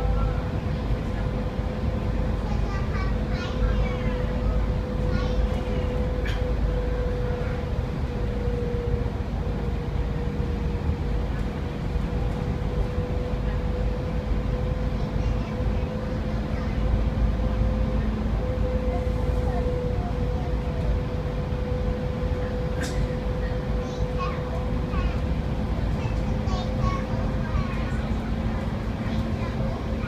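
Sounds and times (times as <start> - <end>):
bus engine and road rumble: 0.0 - 30.0.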